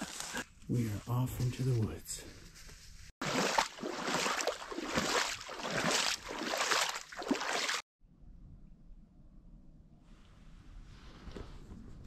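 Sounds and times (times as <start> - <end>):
footsteps splashing through marsh: 3.2 - 7.8.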